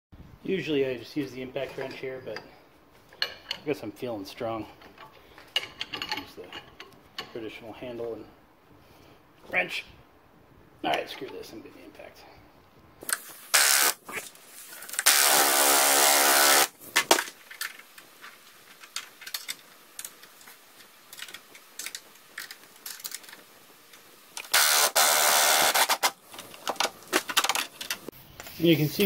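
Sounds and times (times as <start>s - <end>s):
metal tools clinking: 5.0s - 7.4s.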